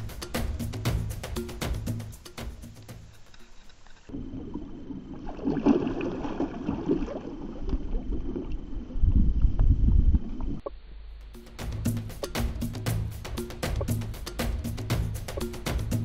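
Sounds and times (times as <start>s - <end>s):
water splashing against boat: 4.2s - 8.8s
wind rumble on microphone: 7.5s - 10.7s.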